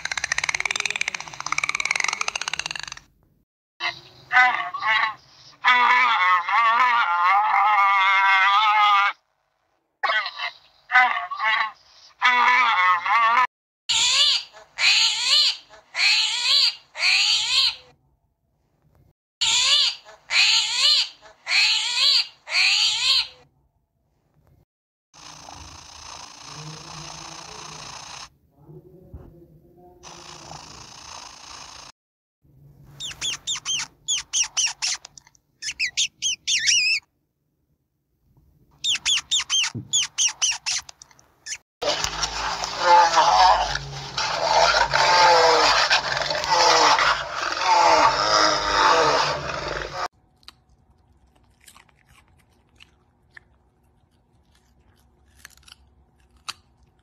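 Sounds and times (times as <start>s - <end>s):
ferret squeaking: 13.9s - 17.8s, 19.4s - 23.4s, 33.0s - 37.1s, 38.8s - 41.6s.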